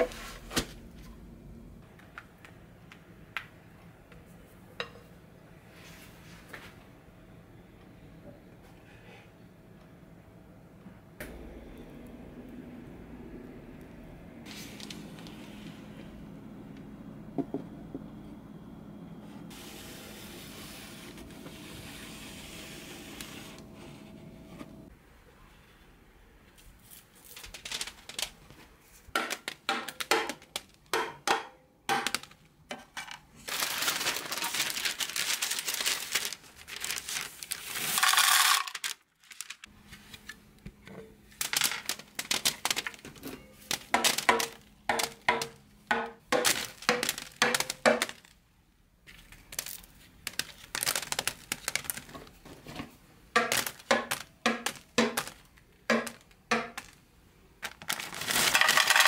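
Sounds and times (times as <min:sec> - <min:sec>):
crackling and rustling: 0:26.4 - 0:30.9, 0:33.0 - 0:45.3, 0:49.0 - 0:59.0
chocolates clattering onto a mat: 0:37.8 - 0:39.7, 0:41.4 - 0:45.2, 0:46.3 - 0:48.4, 0:49.1 - 0:52.4, 0:53.4 - 0:57.0, 0:57.6 - 0:59.0.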